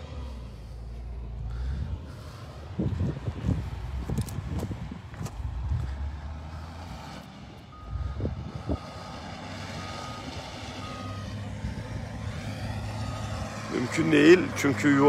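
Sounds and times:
low engine rumble: 0.0s - 15.0s
reversing alarm beeps: 7.7s - 11.4s, 12.8s - 13.4s.

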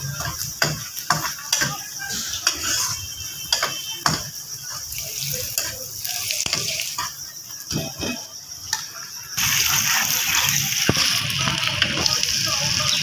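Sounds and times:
onions sizzling in hot oil: 0.0s - 13.0s.

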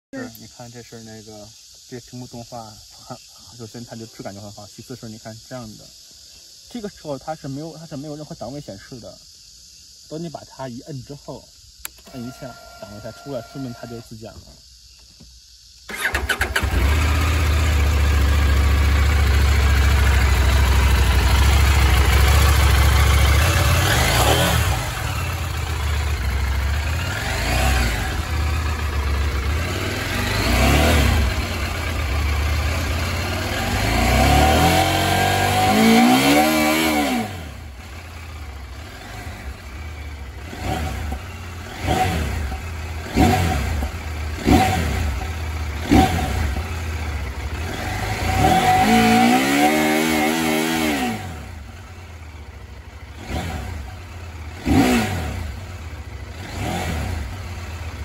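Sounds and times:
motorcycle engine idling and revving: 11.6s - 58.0s.

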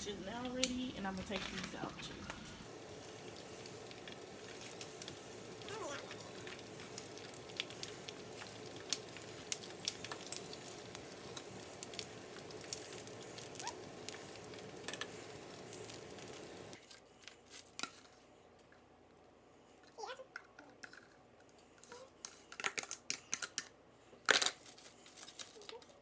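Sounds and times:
deep-frying oil sizzling and popping: 0.0s - 16.8s.

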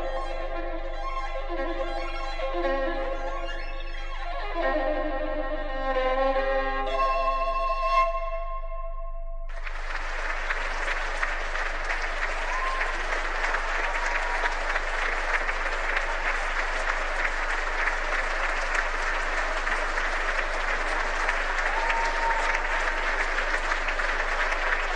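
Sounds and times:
audience applauding: 9.5s - 24.9s.

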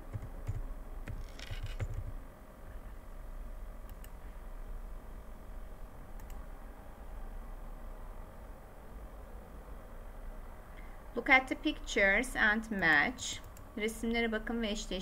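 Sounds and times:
steady low hum: 0.0s - 15.0s
computer keyboard keystrokes: 0.1s - 2.2s
computer mouse clicks: 3.9s - 4.2s, 6.1s - 6.4s.

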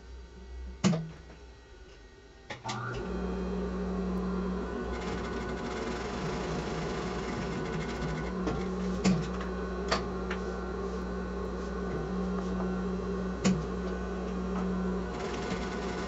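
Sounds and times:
sewing machine running: 4.6s - 9.4s, 15.0s - 16.0s.

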